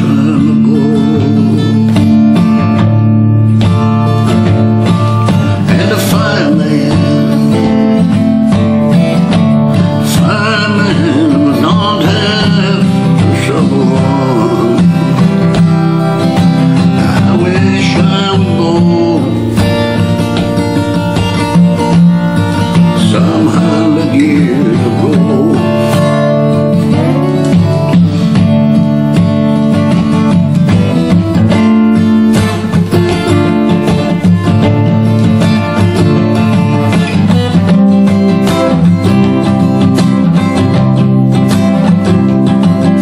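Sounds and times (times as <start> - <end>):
man singing: 0.0 - 2.8, 4.8 - 28.5
acoustic guitar strummed: 0.0 - 43.0.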